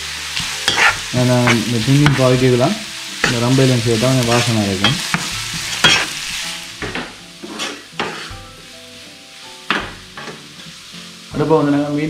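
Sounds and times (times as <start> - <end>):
onions sizzling in oil: 0.0 - 12.0
wooden spoon scraping a pan: 0.4 - 2.2, 3.2 - 6.4, 7.4 - 8.5.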